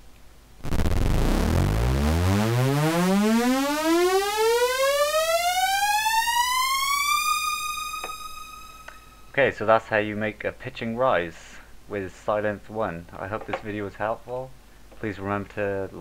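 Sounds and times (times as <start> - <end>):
synth string note rising in pitch: 0.6 - 9.3.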